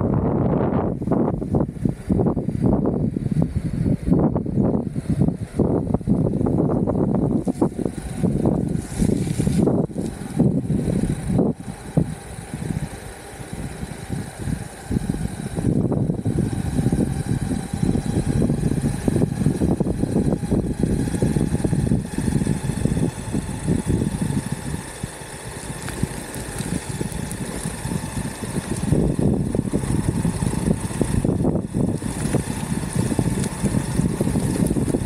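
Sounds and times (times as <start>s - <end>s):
faint steady whine: 0.0s - 35.0s
skateboard wheels rumbling on asphalt: 0.0s - 35.0s.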